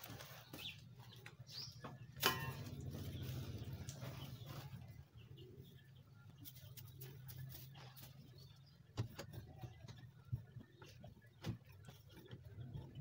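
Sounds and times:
knocks and scrapes on wooden cage: 0:07.5 - 0:13.0.

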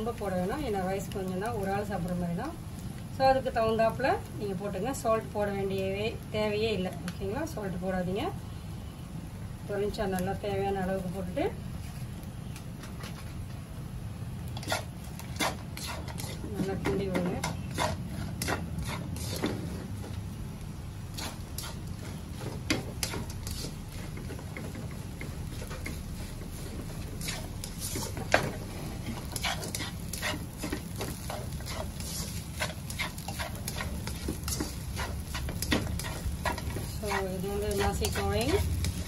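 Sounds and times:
spatula scraping a wok: 0:14.5 - 0:20.1, 0:20.9 - 0:39.0.

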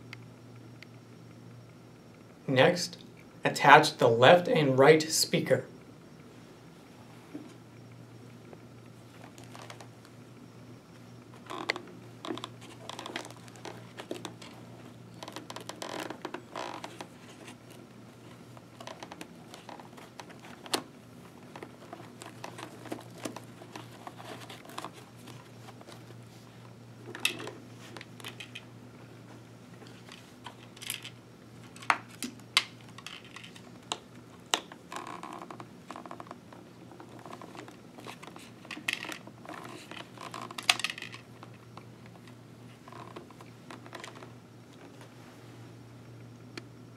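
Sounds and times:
plastic parts clicking: 0:37.1 - 0:41.6.

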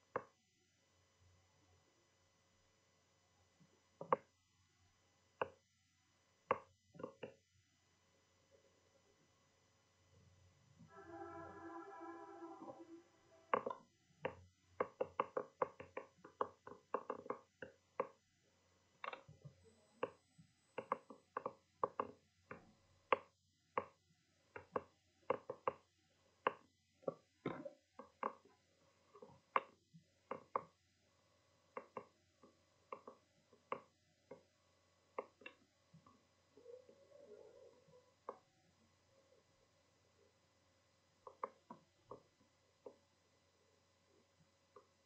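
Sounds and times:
faint steady hum: 0:00.0 - 0:45.0
sharp irregular clicks and knocks: 0:04.0 - 0:04.4, 0:06.4 - 0:07.5, 0:13.5 - 0:18.2, 0:19.0 - 0:30.8, 0:31.7 - 0:34.5, 0:35.1 - 0:36.2, 0:41.2 - 0:43.0.

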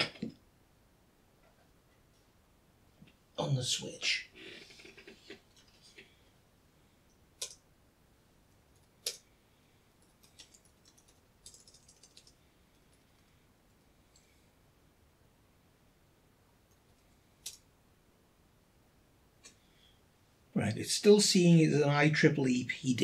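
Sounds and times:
keyboard typing: 0:07.4 - 0:07.6, 0:10.0 - 0:13.3.

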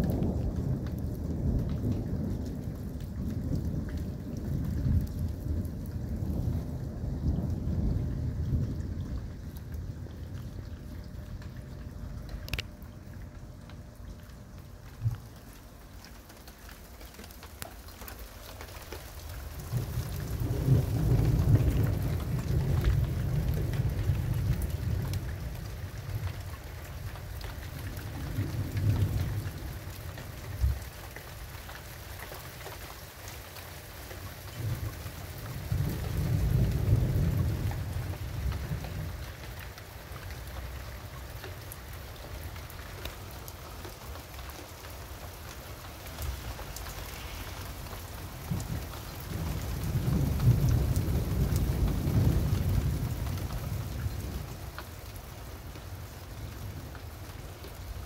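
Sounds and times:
thunder rumbling: 0:00.0 - 0:15.8, 0:19.1 - 0:30.9, 0:34.5 - 0:39.4, 0:45.3 - 0:55.3
steady rain: 0:00.0 - 0:58.0.

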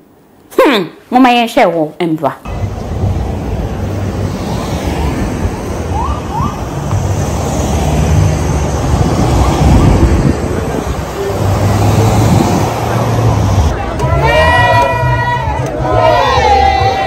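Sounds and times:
cars driving past: 0:02.5 - 0:17.0
wind rumble on microphone: 0:02.6 - 0:13.7.

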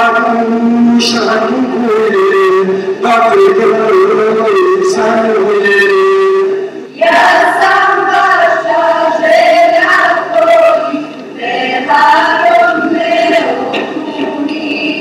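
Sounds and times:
boys singing into microphone: 0:00.0 - 0:15.0
young women singing together: 0:06.9 - 0:15.0.

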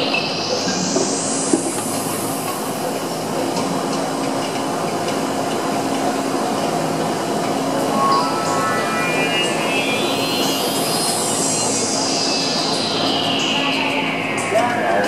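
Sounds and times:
rising synth sweep: 0:07.4 - 0:15.0
low held drone: 0:07.7 - 0:15.0
whooshing synthesizer texture: 0:07.7 - 0:15.0.

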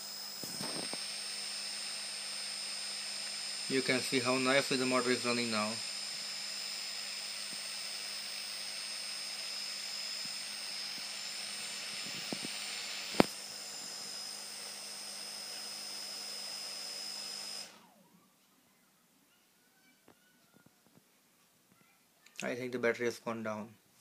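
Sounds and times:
motor spinning propeller whine: 0:00.0 - 0:18.1.

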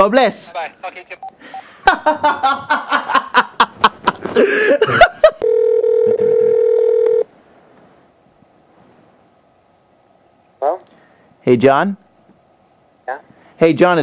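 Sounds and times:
person laughing: 0:01.6 - 0:05.4
phone handset electronic tone: 0:05.4 - 0:07.2.

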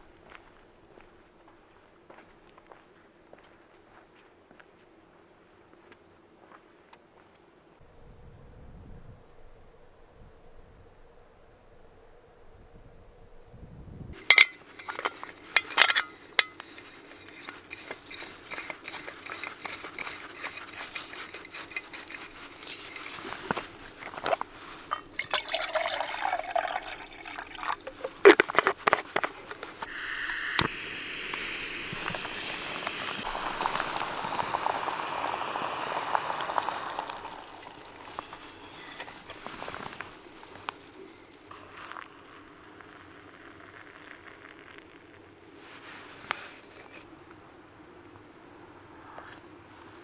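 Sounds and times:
metal clicks and scraping: 0:14.2 - 0:23.6
water pouring into a pot: 0:24.9 - 0:28.2, 0:29.8 - 0:40.0
gas burner hissing: 0:29.8 - 0:40.6.

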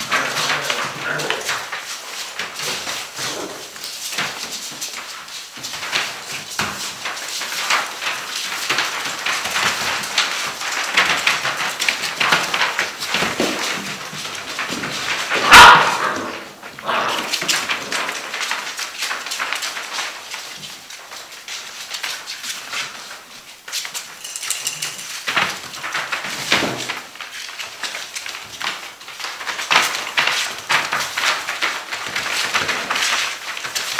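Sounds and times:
paws scrabbling on paper: 0:00.0 - 0:33.9
puppy yelping: 0:15.4 - 0:17.2.

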